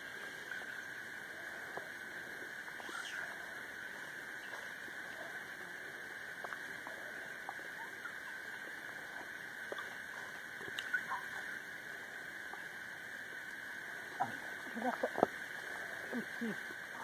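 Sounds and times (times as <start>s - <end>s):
insects buzzing: 0.0s - 17.0s
faint clicks: 6.4s - 8.6s, 9.2s - 11.5s.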